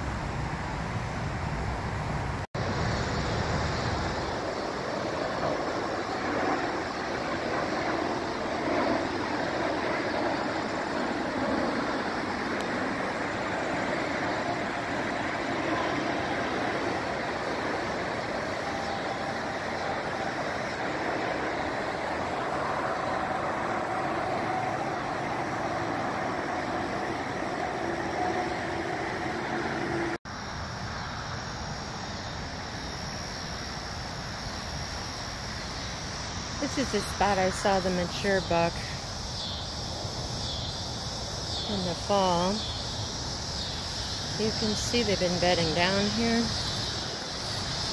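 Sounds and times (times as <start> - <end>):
steady road traffic noise: 0.0 - 47.9
engine drone: 2.6 - 39.0.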